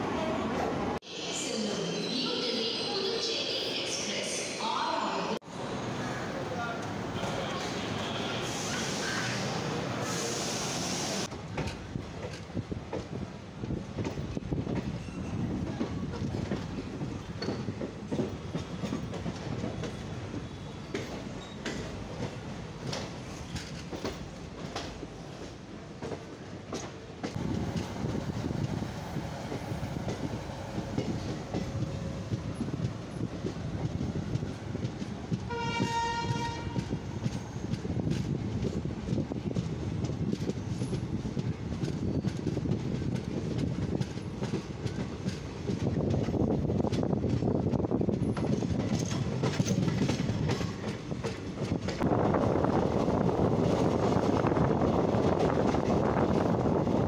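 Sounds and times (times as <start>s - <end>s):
train rumble and wheel clatter: 0.0s - 1.0s, 4.0s - 57.0s
train horn: 35.5s - 36.9s.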